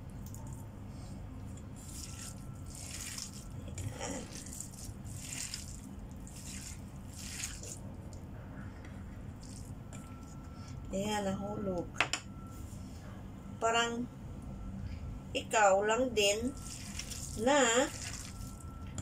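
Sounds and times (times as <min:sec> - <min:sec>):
hand squishing raw meat: 0:01.6 - 0:08.2, 0:16.6 - 0:18.7.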